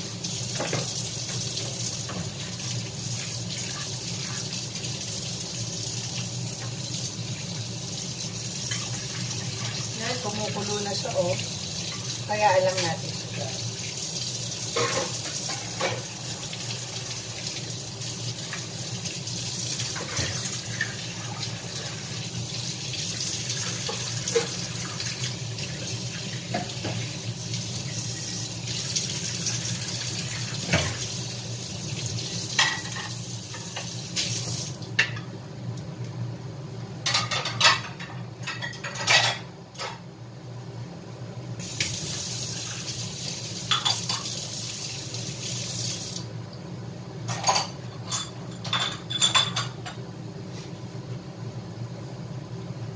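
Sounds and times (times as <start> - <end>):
tap running into sink: 0.5 - 2.4
crockery and metal clinking: 47.3 - 50.0.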